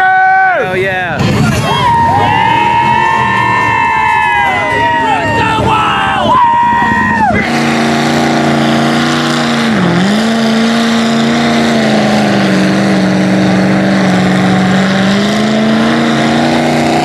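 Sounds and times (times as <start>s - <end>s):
truck engine at high revs: 0.7s - 17.0s.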